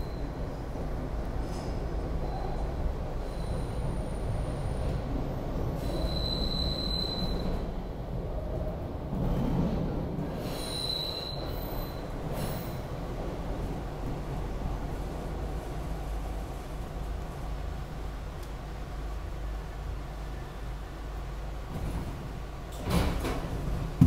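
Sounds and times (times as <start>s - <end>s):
high rail squeal: 0.0s - 0.6s, 1.5s - 5.1s, 5.7s - 7.8s, 10.3s - 12.9s
subway car rumbling on track: 0.0s - 24.0s.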